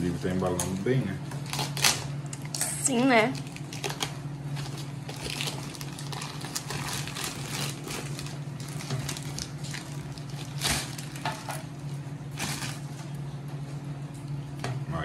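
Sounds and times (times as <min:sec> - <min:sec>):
steady low hum: 0:00.0 - 0:15.0
packaging rustling: 0:03.4 - 0:13.2.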